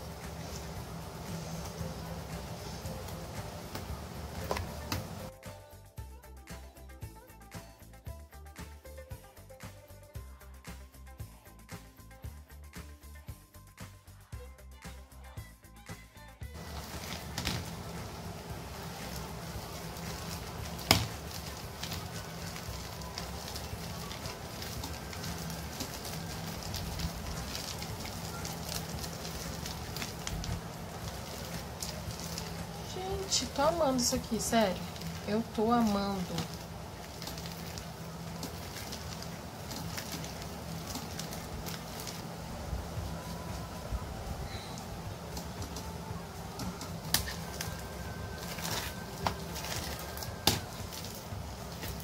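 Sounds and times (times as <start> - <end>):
low steady hum: 0.0 - 52.0
slime crackling and popping: 16.6 - 42.5, 44.7 - 52.0.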